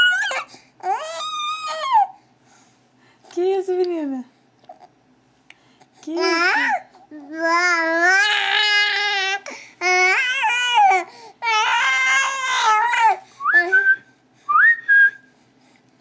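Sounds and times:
infant squealing: 0:00.0 - 0:02.1, 0:07.6 - 0:13.2
infant wailing: 0:00.0 - 0:02.2, 0:06.2 - 0:13.2.

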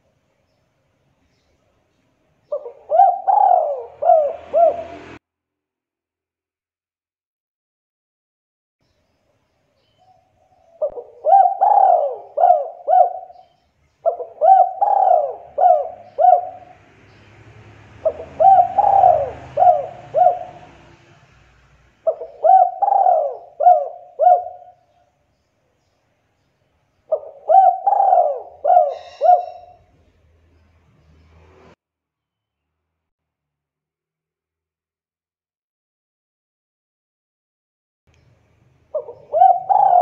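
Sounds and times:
dove cooing: 0:02.5 - 0:05.2, 0:10.4 - 0:16.8, 0:18.0 - 0:21.0, 0:22.0 - 0:25.0, 0:27.1 - 0:29.9, 0:38.9 - 0:40.0.

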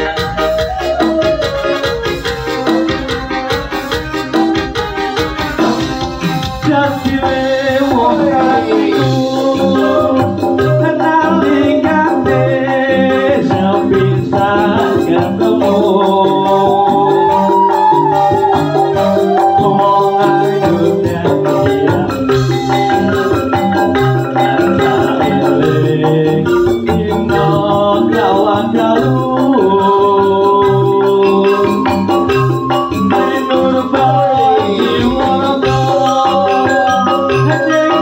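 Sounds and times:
bamboo flute melody: 0:00.0 - 0:26.2, 0:26.8 - 0:38.0
keyboard: 0:00.0 - 0:38.0
steady drum beat: 0:00.0 - 0:38.0
man and woman singing a duet: 0:05.6 - 0:22.9, 0:24.1 - 0:32.2, 0:33.0 - 0:38.0.

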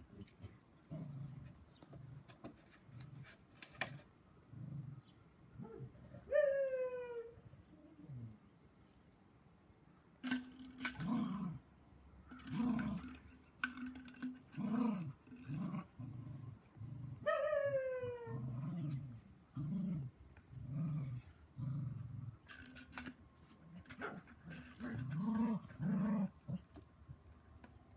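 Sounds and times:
dog growling in play: 0:10.8 - 0:11.6, 0:12.4 - 0:13.2, 0:14.5 - 0:17.4, 0:18.2 - 0:22.8, 0:23.9 - 0:26.7.

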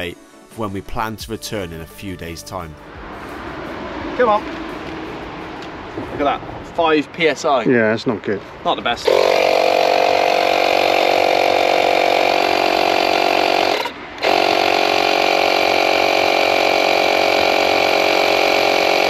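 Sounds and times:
tyre inflator running: 0:09.0 - 0:19.0.

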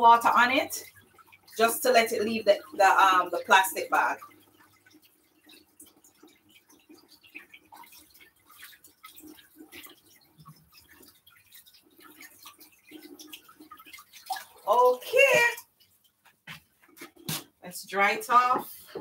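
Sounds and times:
tap water splashing on plastic bag: 0:07.4 - 0:17.6.

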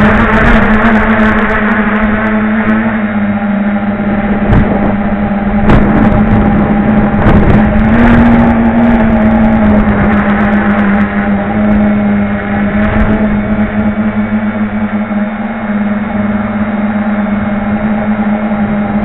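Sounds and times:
drone motors and propellers whirring: 0:00.0 - 0:19.0
wind noise hissing: 0:04.0 - 0:14.2.

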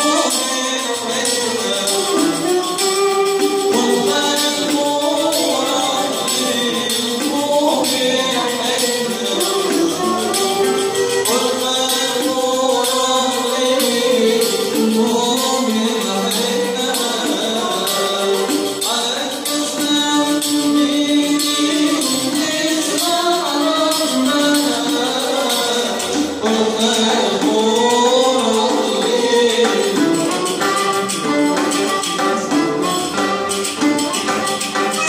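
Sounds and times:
clarinet: 0:00.0 - 0:11.5, 0:30.0 - 0:35.0
frame drum with jingles: 0:00.0 - 0:35.0
oud: 0:00.0 - 0:35.0
violin: 0:00.0 - 0:35.0.

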